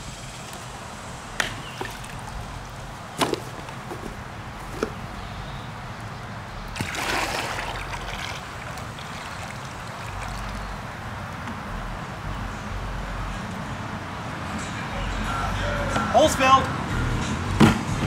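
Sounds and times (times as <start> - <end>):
water pouring and splashing: 0.2 - 4.0, 6.8 - 11.0.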